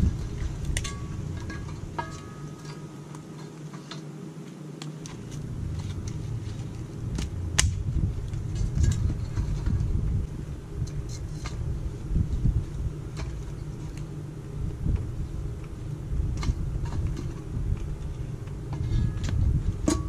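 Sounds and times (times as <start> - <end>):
wind rumbling on microphone: 0.0 - 3.0, 5.0 - 20.0
sharp wood crack: 6.8 - 9.2.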